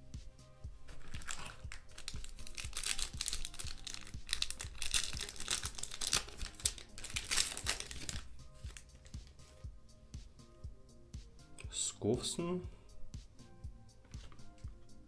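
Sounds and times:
foil wrapper tearing: 0:00.9 - 0:08.9
foil wrapper crinkling: 0:00.9 - 0:09.2.

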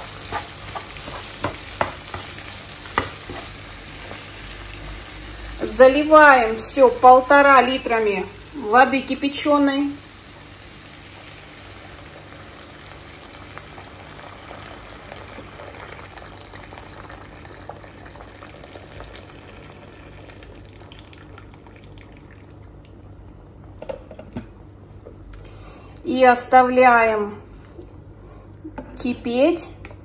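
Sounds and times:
water pouring into a pan: 0:09.8 - 0:23.0.

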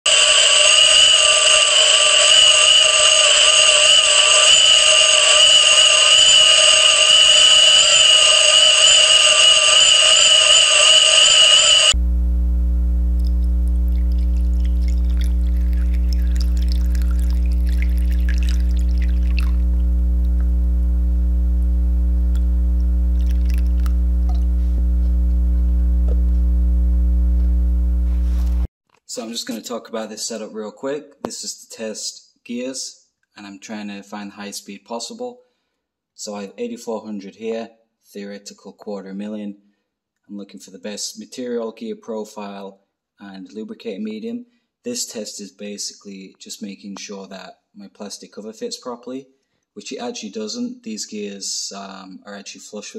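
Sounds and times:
whine of plastic gears spinning: 0:00.1 - 0:12.0
steady low hum: 0:00.1 - 0:28.7
water being poured: 0:13.2 - 0:20.4, 0:23.1 - 0:24.5.

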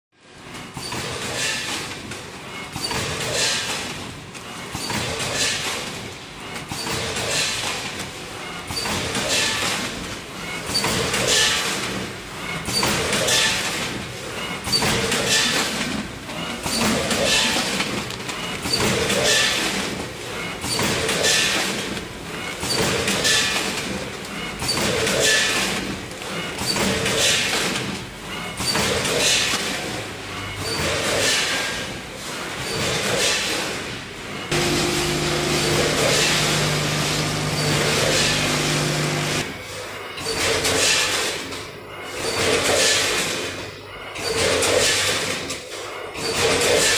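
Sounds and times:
packing machine running: 0:34.1 - 0:39.6.

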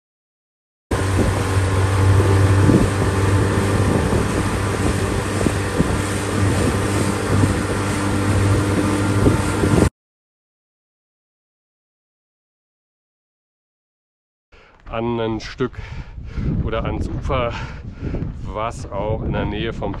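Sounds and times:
motorboat engine running: 0:00.9 - 0:09.9
wind buffeting microphone: 0:00.9 - 0:09.9, 0:14.9 - 0:20.0.

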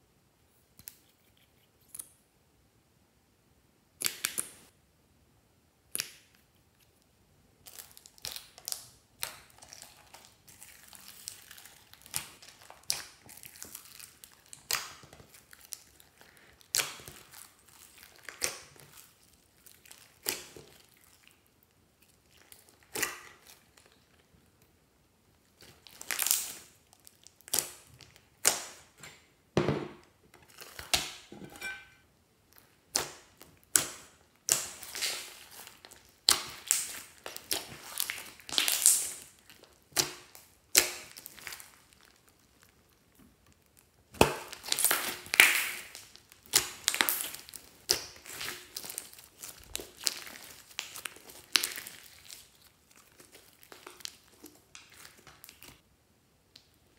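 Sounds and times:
sticky slime squelches and pops: 0:19.7 - 0:21.3, 0:32.9 - 0:41.9, 0:43.1 - 0:55.8.

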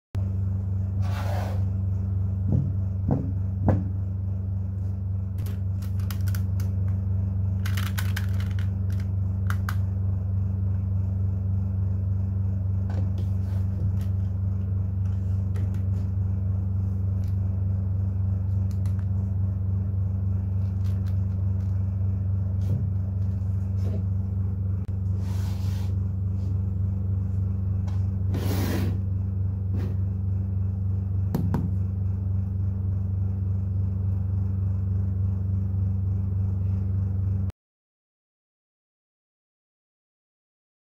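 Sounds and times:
low hum: 0:00.2 - 0:37.5
short scraping sounds: 0:01.0 - 0:01.7, 0:25.1 - 0:26.0, 0:28.3 - 0:29.1.

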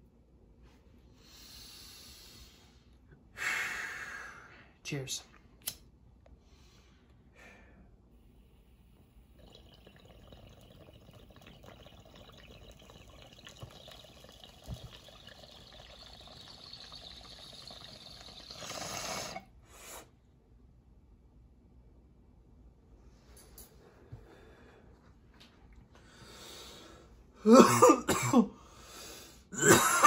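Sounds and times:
water bubbling in a bong: 0:09.2 - 0:19.5.

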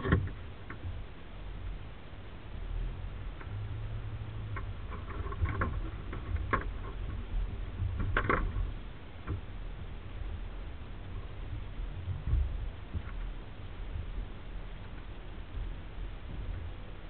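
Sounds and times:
vehicle knocks and rattles: 0:00.0 - 0:01.0, 0:04.4 - 0:10.5, 0:11.4 - 0:16.9
vehicle engine rumble: 0:00.0 - 0:17.0.

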